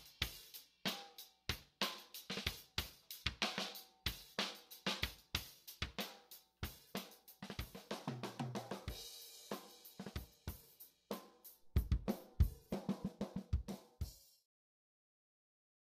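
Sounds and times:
drum kit music: 0.0 - 14.4
kick drum: 11.7 - 12.7, 13.4 - 14.2.

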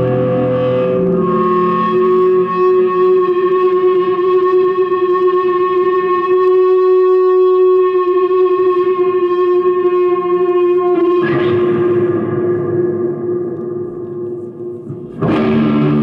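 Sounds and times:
electronic drone of held tones: 0.0 - 6.0.

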